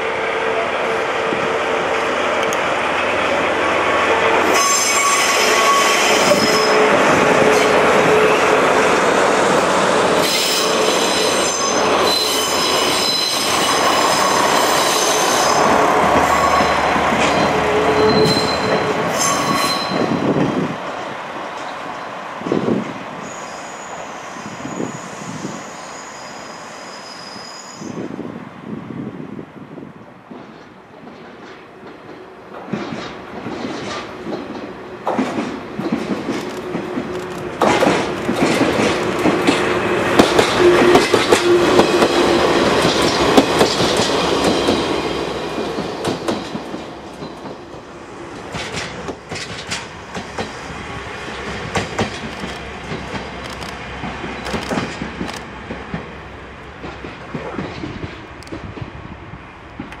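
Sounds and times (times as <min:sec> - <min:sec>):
diesel locomotive passing: 0:00.0 - 1:00.0
wheels clacking over rail joints: 0:30.3 - 0:45.0, 0:45.6 - 0:50.7, 0:51.3 - 0:58.9.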